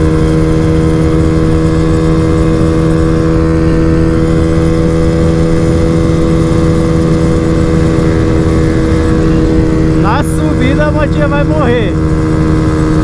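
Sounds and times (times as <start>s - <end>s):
motorcycle engine at high revs: 0.0s - 13.0s.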